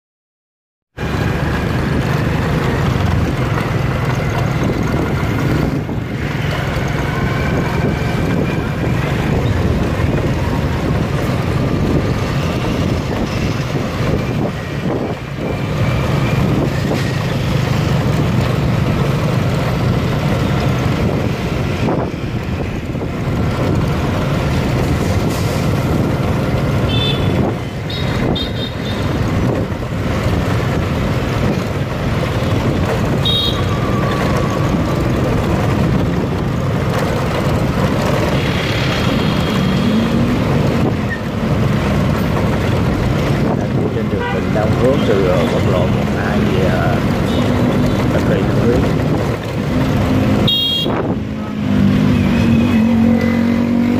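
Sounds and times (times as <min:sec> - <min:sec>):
motorbike and car traffic: 0:00.9 - 0:53.9
wind on microphone: 0:04.2 - 0:19.1, 0:20.5 - 0:53.7
short horn beeps: 0:33.2 - 0:33.9, 0:50.4 - 0:51.0.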